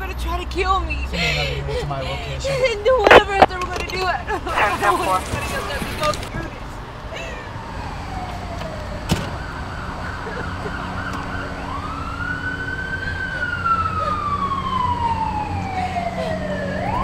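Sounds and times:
police siren wailing: 7.5s - 17.0s.

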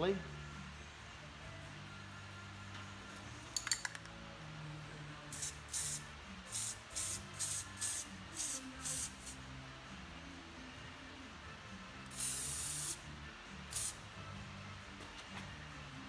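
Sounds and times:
spray can hissing: 5.3s - 9.4s, 12.1s - 13.0s, 13.7s - 14.0s.

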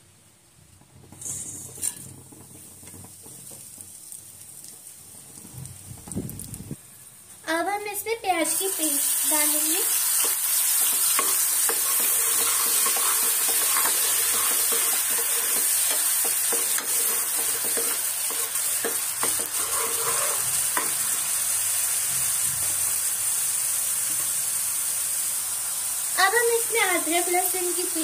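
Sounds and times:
onion paste sizzling in oil: 0.6s - 28.0s
steel ladle scraping a pan: 1.1s - 2.4s, 10.1s - 21.0s.

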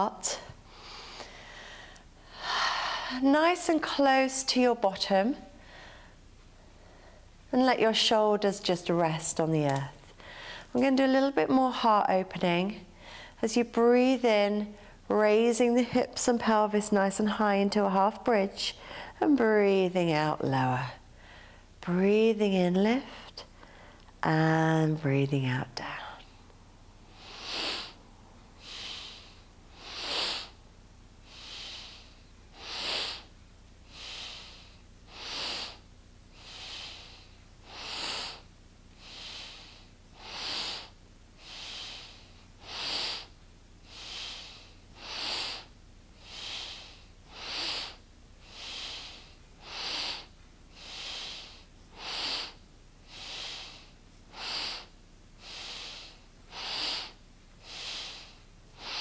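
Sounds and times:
woman breathing deeply: 0.3s - 3.2s, 5.5s - 7.3s, 10.2s - 10.8s, 13.0s - 13.4s, 18.8s - 19.2s, 21.1s - 21.8s, 23.5s - 24.1s, 27.1s - 30.6s, 31.2s - 59.0s.

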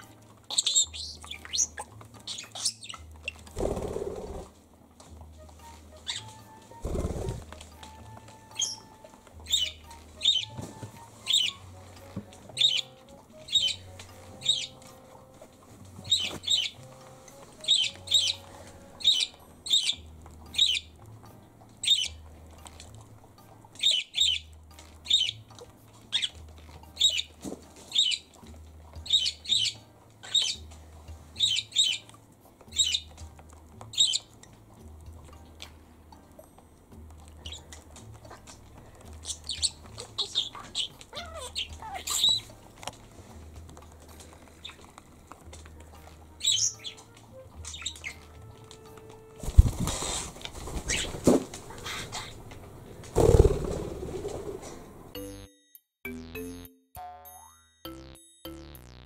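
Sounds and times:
quiet background music: 0.0s - 59.0s
parrot chirping: 0.4s - 3.6s, 5.6s - 15.3s, 16.0s - 21.0s, 21.8s - 22.4s, 23.7s - 30.7s, 31.3s - 35.9s, 37.3s - 42.7s, 44.5s - 45.0s, 45.8s - 48.6s, 50.9s - 52.5s.

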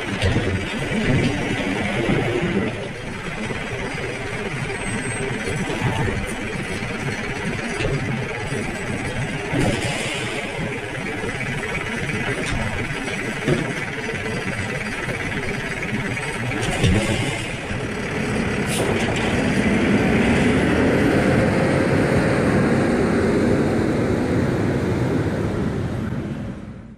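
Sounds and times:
trash cart knocking: 0.0s - 19.6s
hydraulic lifting arm: 0.0s - 20.2s
garbage truck diesel engine: 0.0s - 26.9s.

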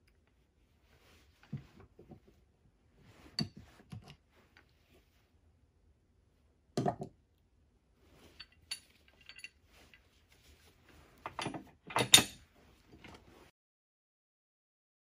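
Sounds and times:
metal winch hook clanking: 11.4s - 12.4s.

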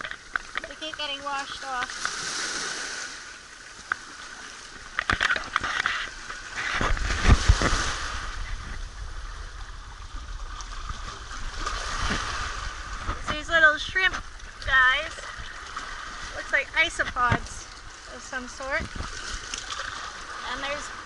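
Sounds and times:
low rumble: 6.9s - 18.1s
water sloshing against wall: 10.6s - 21.0s.

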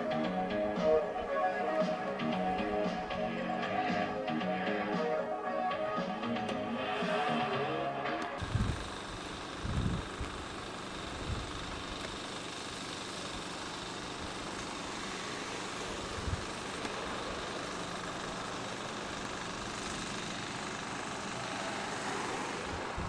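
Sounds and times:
vehicle engine idling: 8.4s - 23.0s.

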